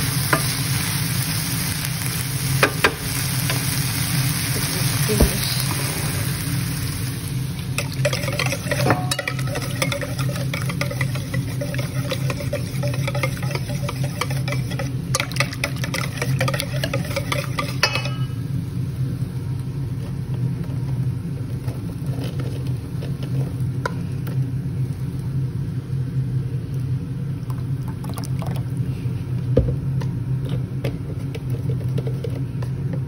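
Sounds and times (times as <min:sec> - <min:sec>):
steady low hum: 0:00.0 - 0:33.0
whisk beating in metal bowl: 0:07.7 - 0:18.4.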